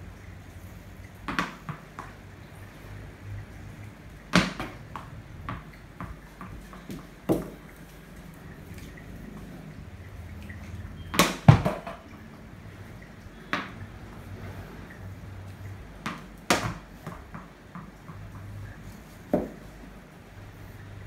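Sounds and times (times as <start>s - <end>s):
ball bouncing on tiled floor: 1.0s - 2.7s, 4.1s - 12.3s, 13.3s - 19.9s
bat knocking ball: 4.3s - 7.6s, 11.1s - 12.0s, 16.0s - 17.5s, 19.3s - 19.6s.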